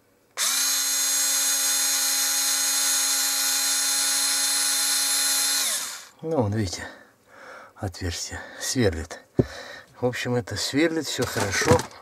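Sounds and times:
electric screwdriver drilling wood: 0.4 - 6.1.

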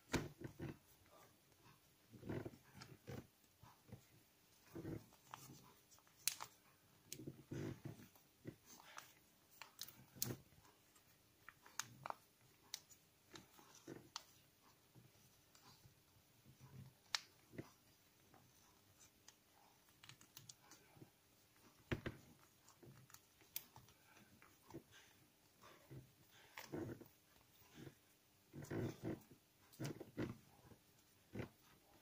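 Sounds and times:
paper crinkling and snapping: 5.0 - 7.2, 19.0 - 20.9.

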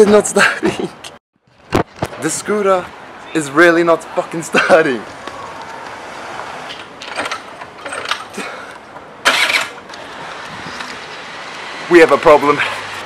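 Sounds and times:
scooter starter cranking: 7.0 - 8.4, 9.2 - 11.0.

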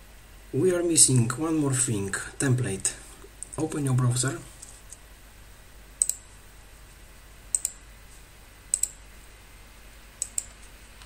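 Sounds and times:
computer mouse clicking: 6.0 - 6.2, 7.5 - 7.8, 8.7 - 9.0, 10.2 - 10.8.

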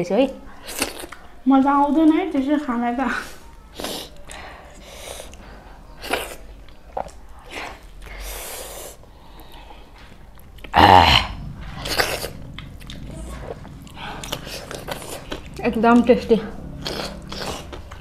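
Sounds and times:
wet chewing and lip smacks: 11.7 - 18.0.

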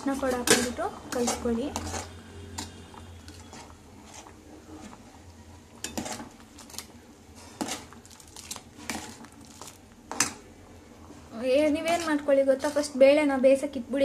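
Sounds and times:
spoon scraping and clinking pot: 0.2 - 5.0, 5.8 - 6.4, 11.8 - 13.0.

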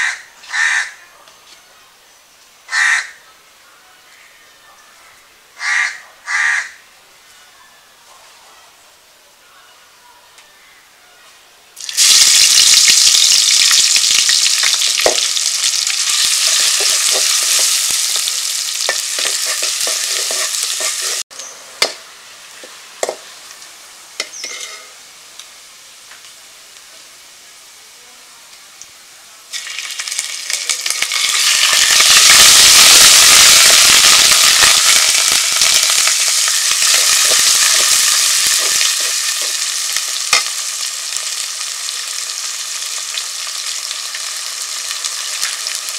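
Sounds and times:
onions sizzling in hot oil: 11.8 - 27.7, 29.4 - 45.9
metal spatula scraping pot: 18.8 - 21.2, 24.3 - 25.0.

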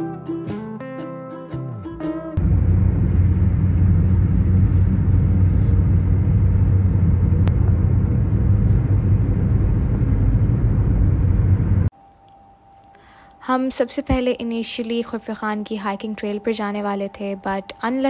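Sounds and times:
road and wind noise: 2.4 - 11.9.

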